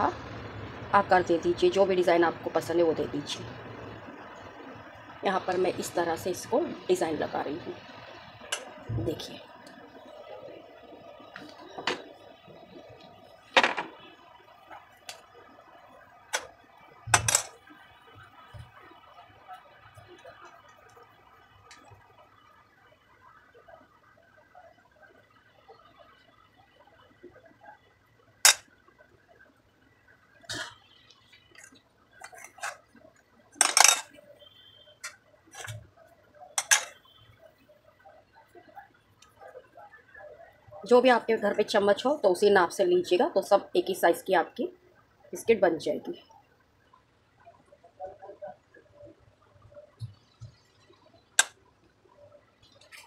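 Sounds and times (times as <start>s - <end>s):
spoon against metal pan: 36.6s - 37.0s.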